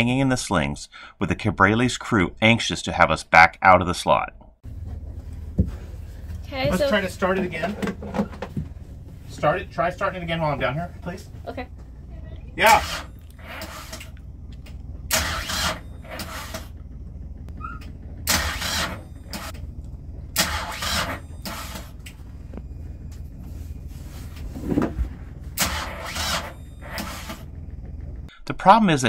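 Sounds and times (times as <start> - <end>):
steady low rumble: 4.6 - 28.6
engine starter cranking: 12.6 - 22.3, 24.6 - 28.3.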